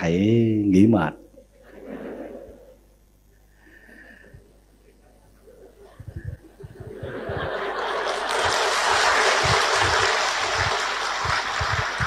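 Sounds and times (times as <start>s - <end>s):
audience laughter: 5.5s - 12.0s
audience applause: 6.9s - 12.0s.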